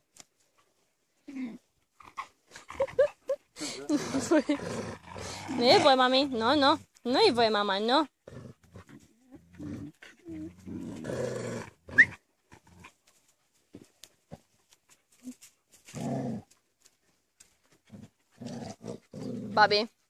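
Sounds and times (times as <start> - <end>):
dogs growling in rough play: 2.6 - 6.0, 8.2 - 13.0, 15.8 - 16.6, 17.8 - 19.7.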